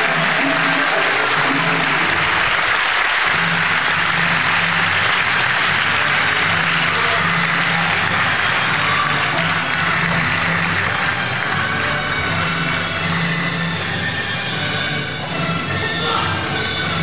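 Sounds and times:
audience applauding: 0.0s - 13.5s
faint music: 0.0s - 17.0s.

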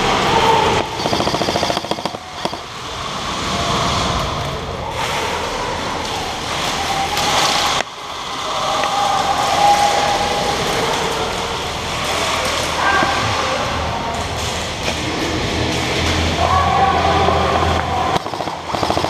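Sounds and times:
steady din of noise: 0.0s - 19.0s
airsoft gun full-auto burst: 0.8s - 2.7s, 18.2s - 19.0s.

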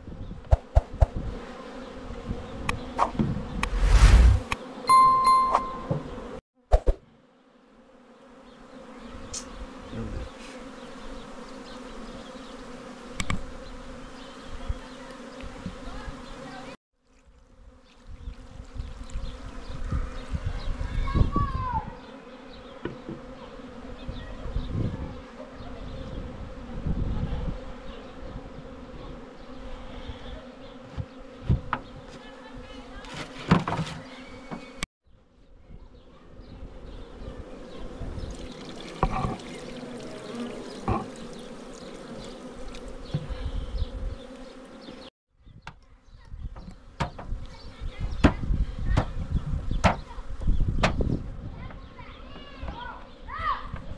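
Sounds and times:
bees buzzing: 0.4s - 16.8s, 17.5s - 34.9s, 35.9s - 45.1s
knocks from hive handling: 5.7s - 6.2s, 22.8s - 23.4s, 30.8s - 32.2s, 33.1s - 34.7s, 40.8s - 41.2s, 46.6s - 47.4s, 49.8s - 50.1s, 50.8s - 51.1s.

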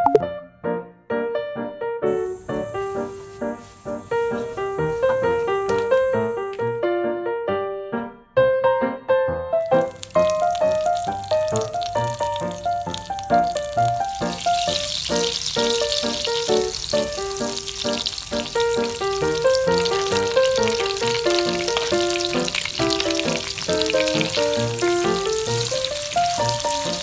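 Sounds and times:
margarine sizzling in a pan: 2.1s - 6.8s, 9.6s - 27.0s
background music: 9.5s - 27.0s.

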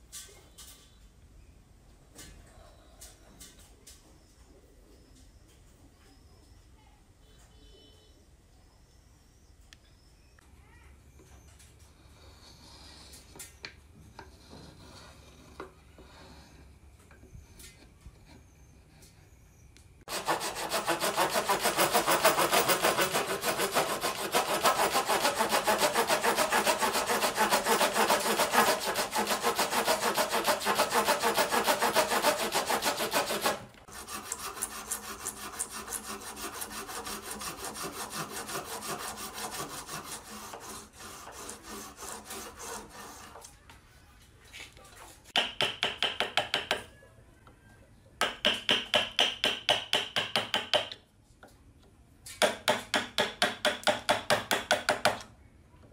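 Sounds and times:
hand saw cutting wood: 20.1s - 43.5s.

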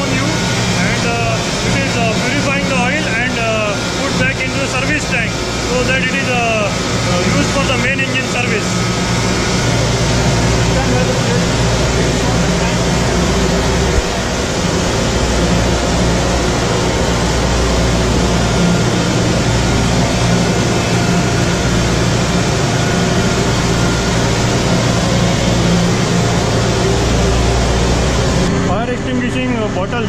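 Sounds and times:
engine room machinery drone: 0.0s - 30.0s.

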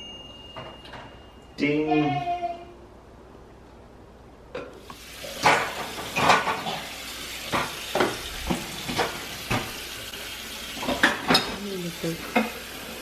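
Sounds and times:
tap water running: 4.8s - 13.0s
dishes and mugs clattering: 5.4s - 9.7s, 10.8s - 11.6s.

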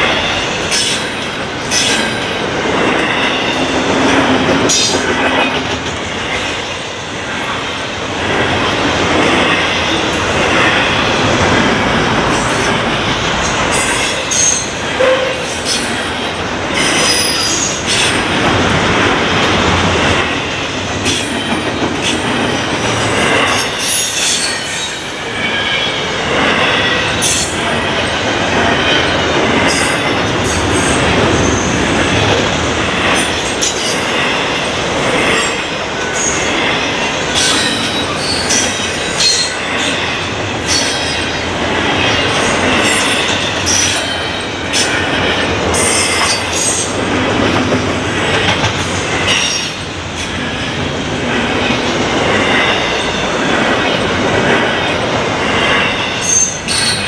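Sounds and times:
freight train rolling past: 0.0s - 57.0s.

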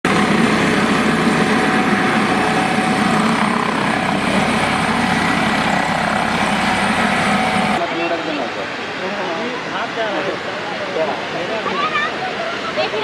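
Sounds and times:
helicopter rotor thrumming: 0.0s - 7.8s
faint turbine whine: 0.1s - 13.0s.

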